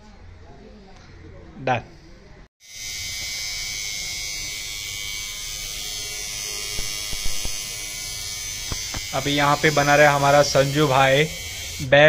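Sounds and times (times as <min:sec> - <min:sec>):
tattoo machine buzzing: 0:02.6 - 0:12.0.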